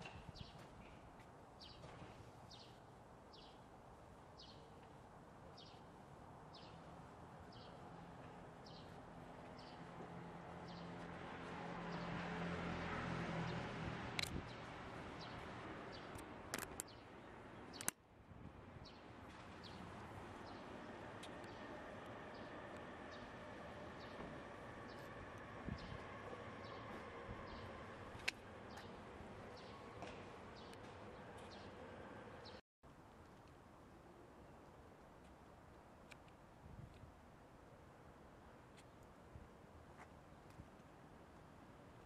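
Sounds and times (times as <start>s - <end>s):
low engine hum: 7.8s - 16.2s, 19.1s - 32.6s.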